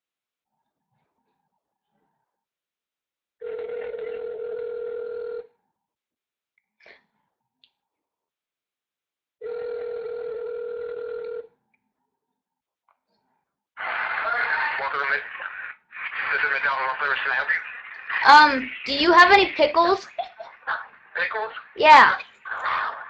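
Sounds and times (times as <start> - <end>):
telephone ringback tone: 3.4 - 5.5, 9.4 - 11.4.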